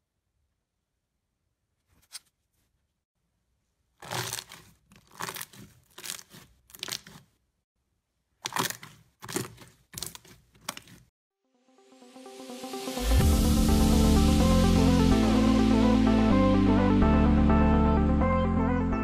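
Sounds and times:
slime squelching and crackling: 0:04.0 - 0:07.4, 0:08.4 - 0:11.1.

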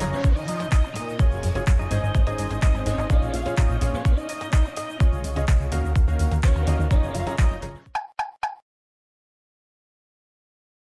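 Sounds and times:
electronic music with kick drum: 0:00.0 - 0:08.6.

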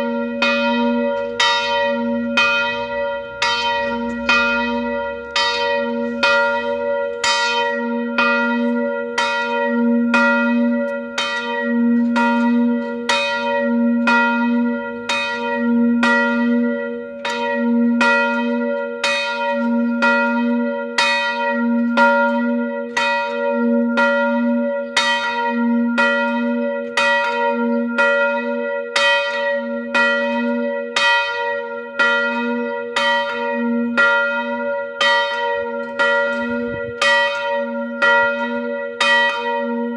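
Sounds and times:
church bell tolling: 0:00.0 - 0:39.9
low bell hum: 0:35.8 - 0:37.3.

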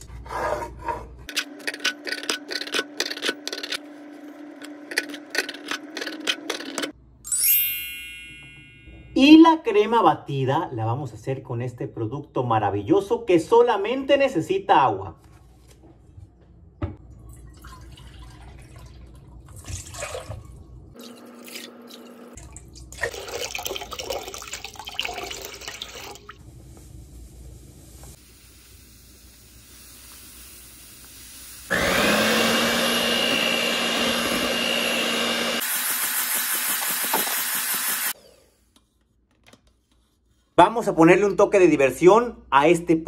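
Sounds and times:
water pouring into steel bowl: 0:17.2 - 0:26.4
electric mixer whirring: 0:31.7 - 0:38.4.

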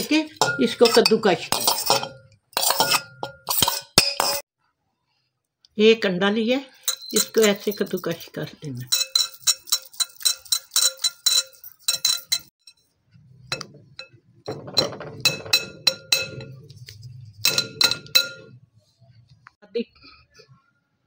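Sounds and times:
grater clinking on glass bowl: 0:00.4 - 0:04.4, 0:06.9 - 0:08.2, 0:08.9 - 0:12.5.

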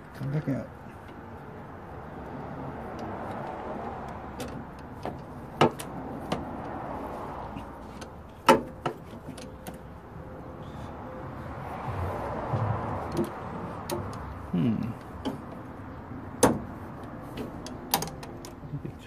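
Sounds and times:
hand tool clicks and knocks: 0:13.1 - 0:14.4, 0:16.4 - 0:18.7.

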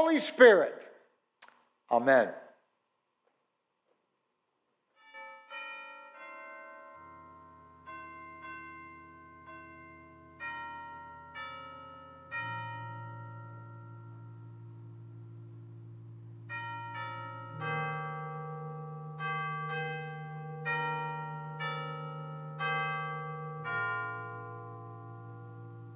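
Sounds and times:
chimes playing slow piece: 0:05.0 - 0:25.9
long-held lower notes: 0:07.0 - 0:25.9.

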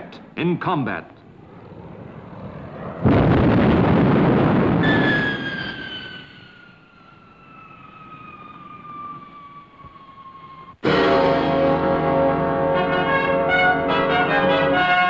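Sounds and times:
jet engines whining: 0:00.0 - 0:15.0
loud blast: 0:02.5 - 0:06.8, 0:10.8 - 0:15.0.

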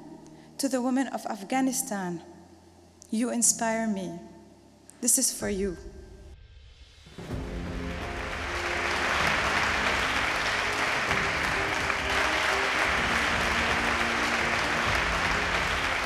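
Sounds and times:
music playing: 0:07.1 - 0:16.0
audience applauding: 0:07.3 - 0:16.0.

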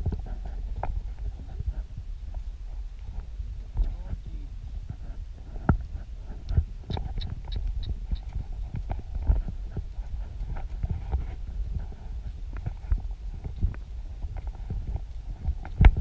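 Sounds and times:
steady low rumble: 0:00.0 - 0:16.0
horse hoofbeats on dirt: 0:03.8 - 0:16.0.

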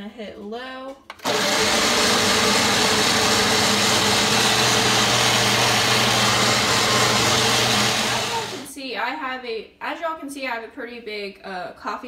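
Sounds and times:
blender motor humming: 0:01.1 - 0:08.7.

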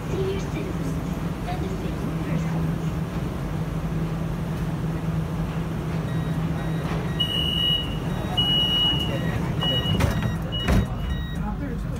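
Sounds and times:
metro train hum: 0:00.0 - 0:11.9
door-closing warning tone: 0:05.9 - 0:11.5
long beeps: 0:06.1 - 0:11.5.

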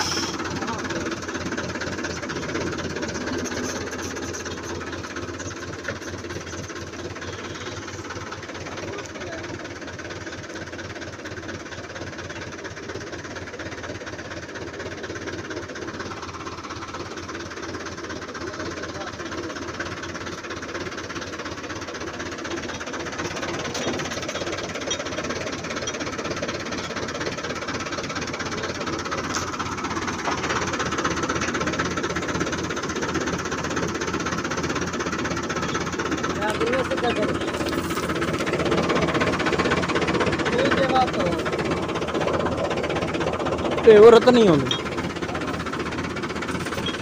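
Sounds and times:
tractor diesel engine running: 0:00.0 - 0:47.0.

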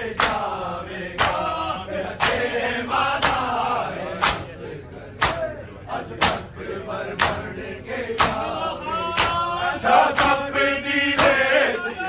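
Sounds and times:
men chanting a lament: 0:00.0 - 0:12.0
hands slapping chests: 0:00.2 - 0:00.5, 0:01.2 - 0:01.5, 0:02.2 - 0:02.5, 0:03.2 - 0:03.5, 0:04.2 - 0:04.6, 0:05.2 - 0:05.5, 0:07.2 - 0:07.5, 0:08.2 - 0:08.5, 0:09.2 - 0:09.4.

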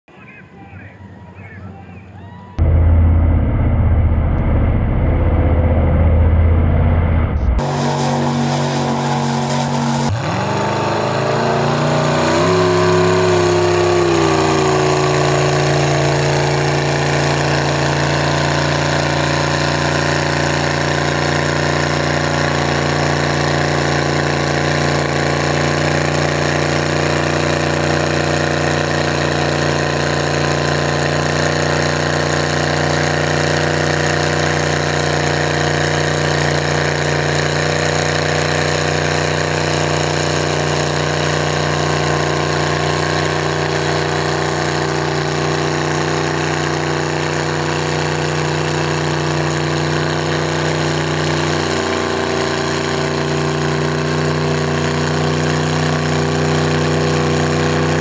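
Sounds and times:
truck engine revving: 0:00.3 - 0:58.0
deep muffled rumble: 0:01.1 - 0:08.1.

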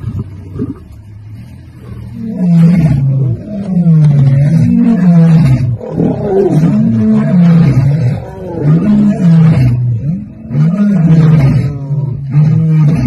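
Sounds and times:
lion roaring: 0:00.0 - 0:13.0.

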